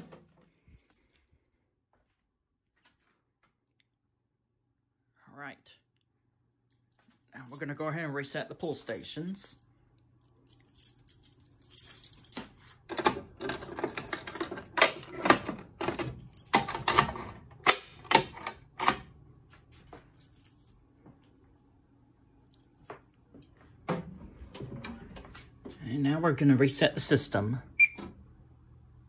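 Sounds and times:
keys jangling: 10.3s - 17.4s.

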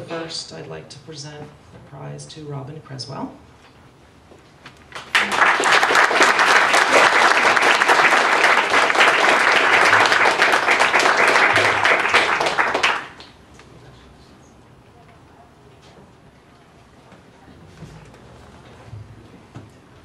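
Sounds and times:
audience applauding: 4.9s - 13.4s.

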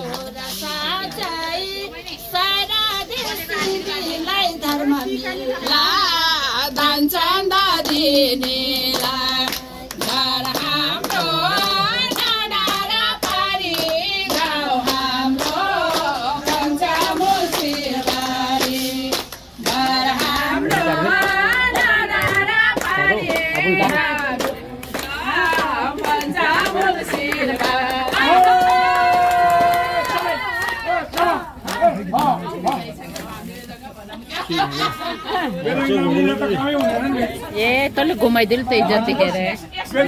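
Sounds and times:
hand-clapping: 0.0s - 1.5s, 3.6s - 5.8s, 7.7s - 33.4s.

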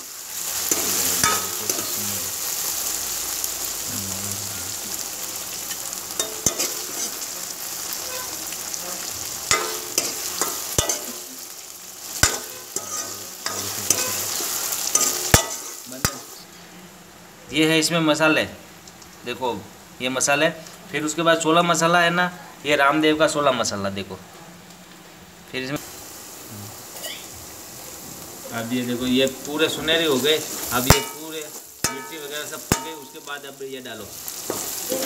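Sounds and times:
vegetables sizzling in oil: 0.0s - 21.9s, 22.7s - 35.0s
metal ladle scraping pan: 0.7s - 2.0s, 6.2s - 11.4s, 12.2s - 16.4s, 30.4s - 33.2s, 34.5s - 35.0s.

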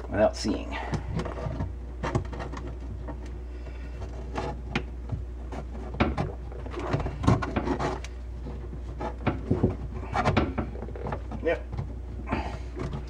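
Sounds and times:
low hum: 0.0s - 13.0s
plastic tubing knocking and clicking: 4.7s - 12.0s.

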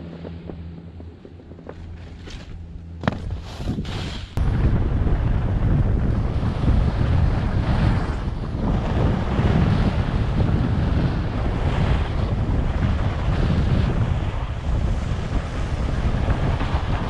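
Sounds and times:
wind buffeting microphone: 0.0s - 17.0s
skis sliding over snow: 2.0s - 4.4s.

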